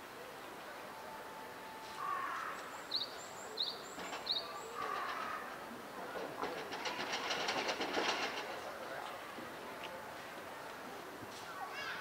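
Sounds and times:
fast clattering rattle: 0:06.3 - 0:08.8.

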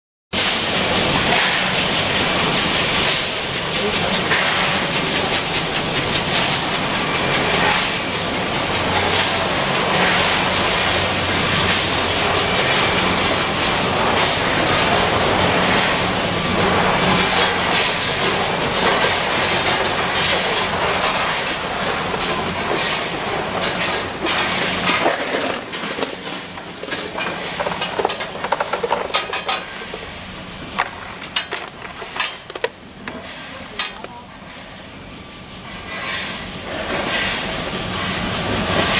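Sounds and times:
factory machinery humming and clattering: 0:00.4 - 0:38.9
small metal parts clinking: 0:19.2 - 0:30.0, 0:30.8 - 0:32.8.

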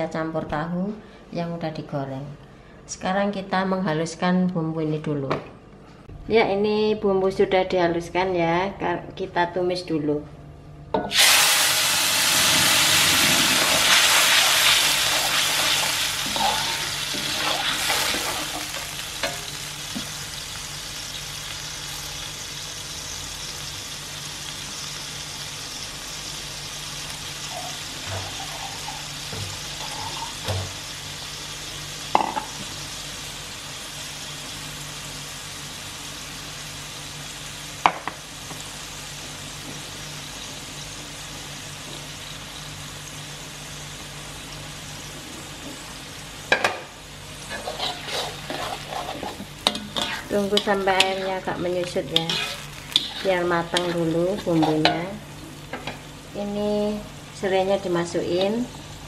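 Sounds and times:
paste sizzling in hot oil: 0:11.1 - 0:45.2, 0:47.1 - 0:55.8
metal utensil scraping a wok: 0:13.6 - 0:19.4, 0:29.8 - 0:30.4, 0:47.4 - 0:55.2.

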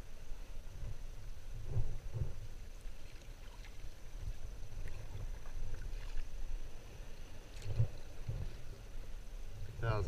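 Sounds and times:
water lapping against a hull: 0:00.0 - 0:10.0
wind rumble on microphone: 0:00.0 - 0:10.0
faint water drips: 0:02.9 - 0:06.5.

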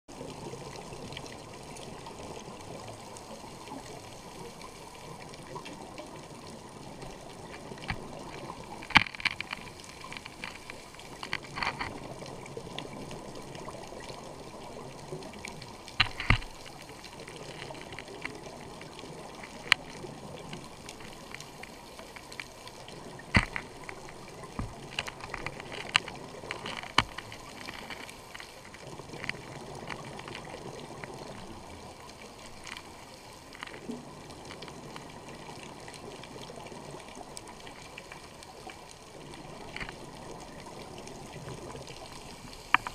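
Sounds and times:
sharp clicks and pops: 0:07.0 - 0:13.0, 0:15.4 - 0:30.5, 0:42.6 - 0:42.9
underwater water hiss: 0:12.2 - 0:24.7, 0:27.2 - 0:29.0, 0:29.7 - 0:42.9.

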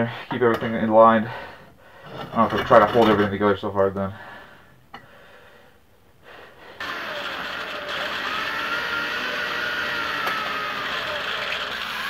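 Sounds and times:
electric drill cutting steel: 0:06.8 - 0:12.0.

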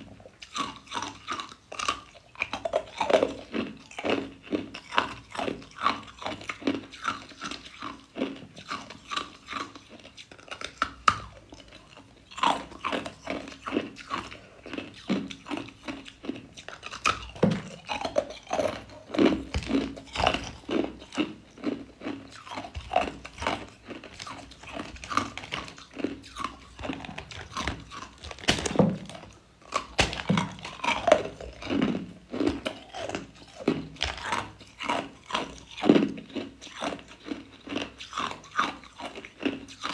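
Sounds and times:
ice cubes crunching: 0:16.2 - 0:39.9.

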